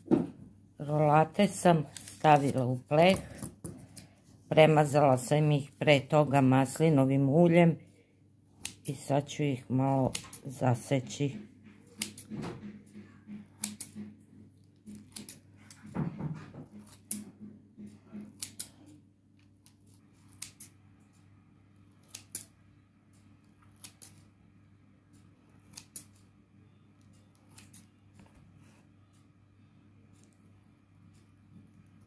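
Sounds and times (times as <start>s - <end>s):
scissors snipping dough: 8.6s - 15.9s, 16.6s - 19.0s, 19.6s - 20.8s, 21.9s - 22.6s, 23.5s - 24.3s, 25.5s - 26.3s, 27.0s - 28.3s.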